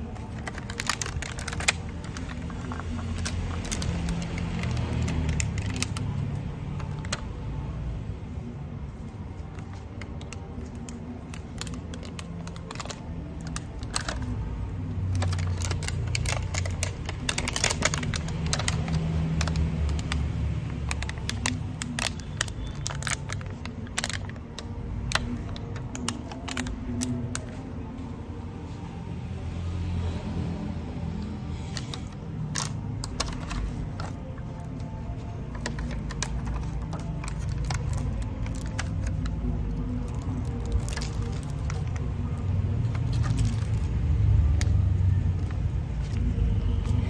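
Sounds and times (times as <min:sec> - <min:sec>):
plastic food boxes clicking: 0:00.0 - 0:06.1, 0:09.9 - 0:14.4, 0:15.1 - 0:20.2, 0:20.8 - 0:27.4, 0:35.5 - 0:39.4, 0:40.0 - 0:42.1.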